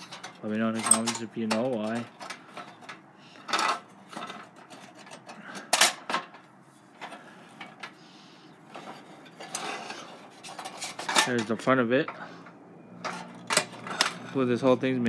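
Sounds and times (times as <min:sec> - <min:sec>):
toy truck metal and plastic clunks: 0:13.0 - 0:14.3.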